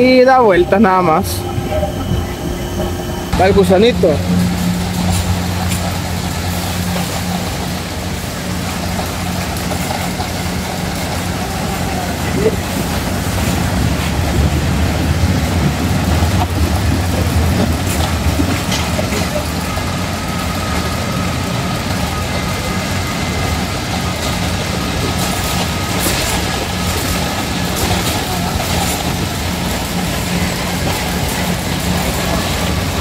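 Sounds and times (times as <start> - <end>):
roller coaster cars rumbling: 0.0 - 33.0
faint fairground voices: 8.9 - 13.5, 18.6 - 33.0.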